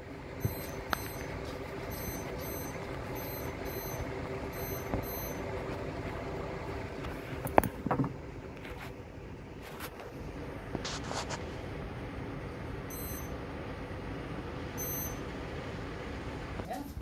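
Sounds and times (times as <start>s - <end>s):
high-pitched double beeps: 0.4s - 1.3s, 1.9s - 5.4s, 12.9s - 13.4s, 14.8s - 15.2s.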